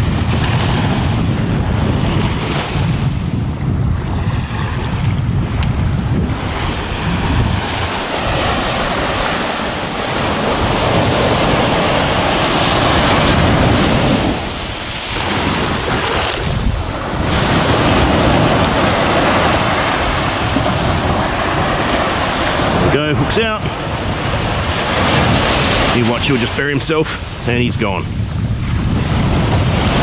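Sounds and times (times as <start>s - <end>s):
wind buffeting microphone: 0.0s - 30.0s
small surf washing on sand: 4.0s - 30.0s.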